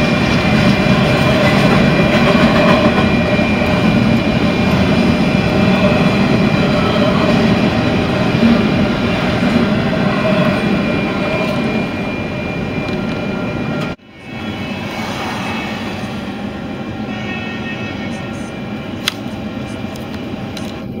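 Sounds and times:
train wheels rumbling: 0:00.0 - 0:21.0.

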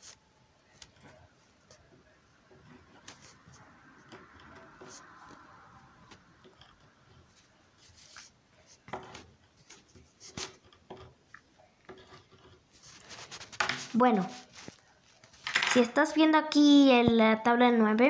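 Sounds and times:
ballpoint pen scratching paper: 0:06.4 - 0:11.2, 0:11.9 - 0:14.8.

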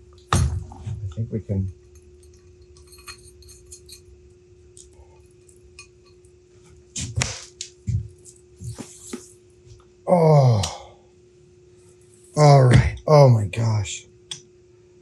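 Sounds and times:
faint steady hum: 0:00.0 - 0:15.0
metal parts clicking and clinking: 0:02.2 - 0:04.1.

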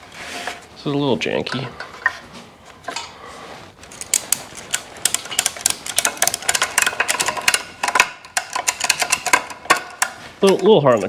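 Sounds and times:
metallic clicking and clinking: 0:03.8 - 0:11.0.

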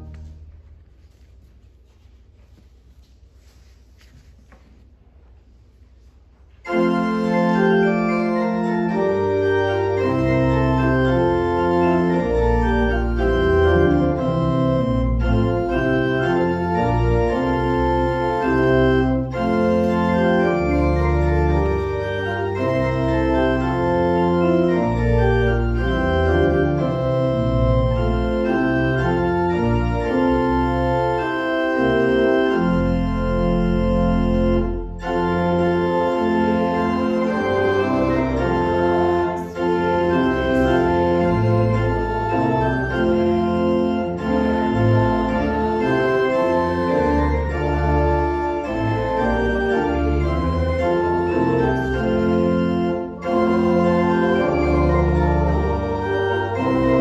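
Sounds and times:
church organ chords: 0:00.0 - 0:00.6, 0:06.6 - 0:57.0.

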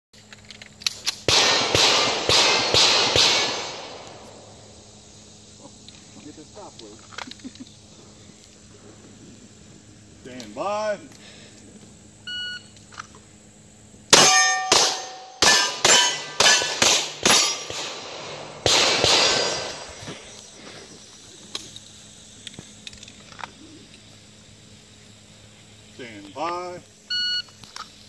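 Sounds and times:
pistol shots: 0:01.1 - 0:04.5, 0:14.1 - 0:20.0
steel targets ringing: 0:14.1 - 0:19.9.

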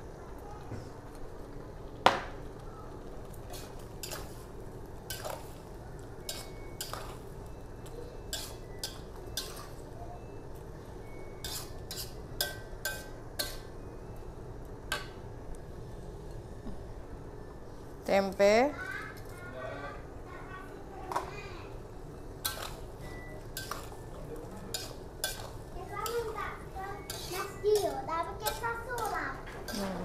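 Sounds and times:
low background hum: 0:00.0 - 0:30.0
metal spatula scraping wok: 0:11.4 - 0:12.2.

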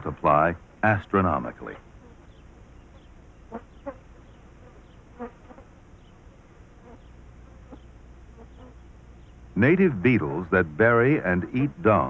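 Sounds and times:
flies buzzing: 0:01.6 - 0:10.4.

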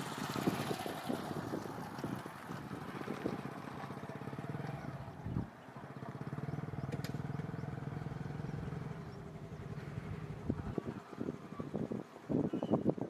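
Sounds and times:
engine running: 0:00.0 - 0:12.1.

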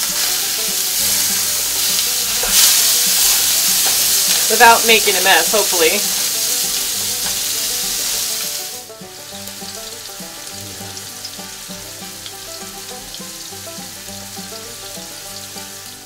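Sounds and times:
meat sizzling in a frying pan: 0:00.0 - 0:16.0.

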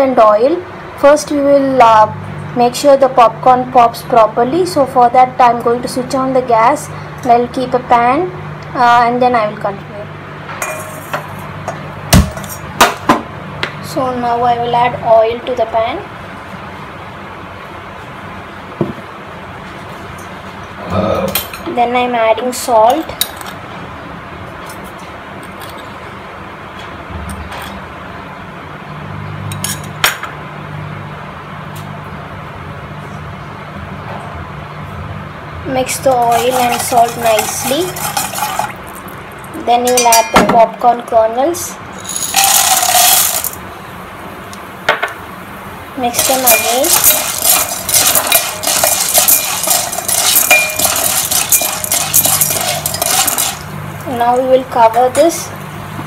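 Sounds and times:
pan ringing: 0:10.6 - 0:11.3, 0:39.9 - 0:40.6, 0:46.2 - 0:53.8
popcorn kernels rattling in pan: 0:36.0 - 0:39.0, 0:42.0 - 0:43.6, 0:46.1 - 0:53.8
metal spoon scraping steel pan: 0:36.2 - 0:38.7, 0:46.2 - 0:53.6.

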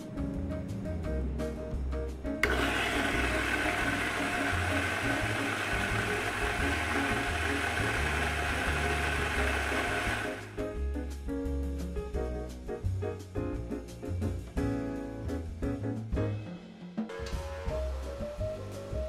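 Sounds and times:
jazz music: 0:00.0 - 0:19.0
coffee grinder grinding beans: 0:02.4 - 0:10.6.

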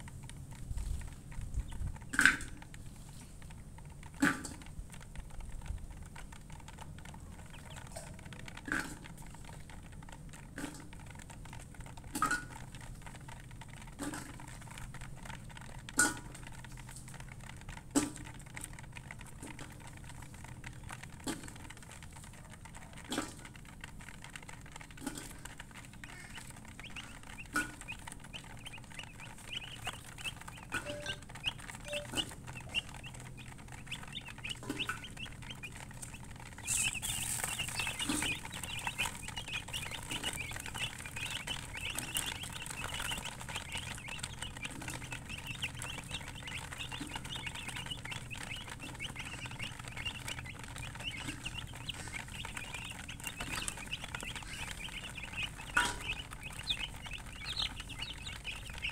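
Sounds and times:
baby chicks peeping: 0:00.0 - 0:58.9.

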